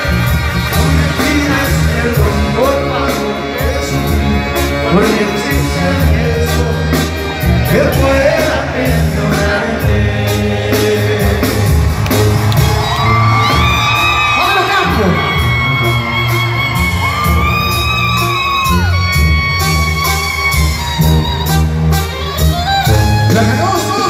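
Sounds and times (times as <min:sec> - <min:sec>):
tuba bass line: 0:00.0 - 0:13.8, 0:18.9 - 0:24.0
brass band music: 0:00.0 - 0:24.0.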